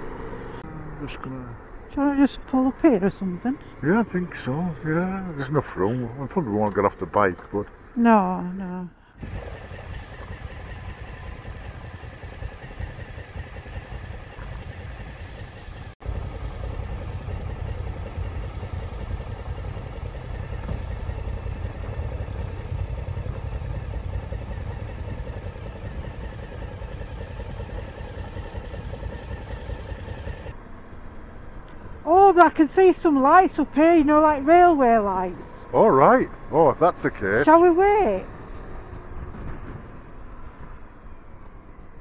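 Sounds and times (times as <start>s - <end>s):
motorcycle engine idling: 9.2s - 30.5s.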